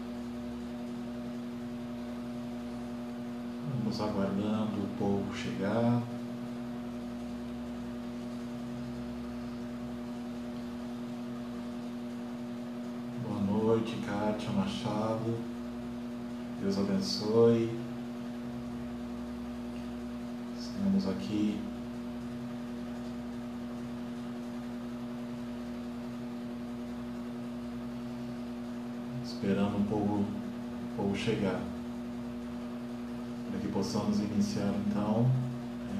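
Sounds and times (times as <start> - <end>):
room noise hiss: 0.0 - 35.9
steady low hum: 0.0 - 35.9.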